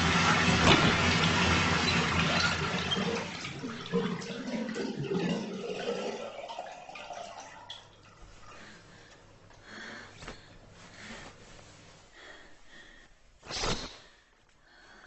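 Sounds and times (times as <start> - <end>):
water rushing: 0.0 - 6.2
water trickling: 0.0 - 9.0.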